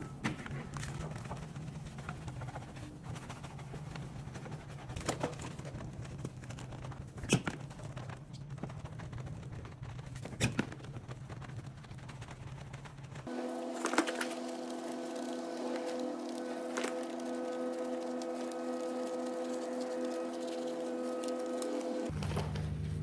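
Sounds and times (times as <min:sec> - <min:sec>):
steady low hum: 0:00.0 - 0:23.0
brush scrubbing wet wheel: 0:00.9 - 0:06.5, 0:13.2 - 0:22.1.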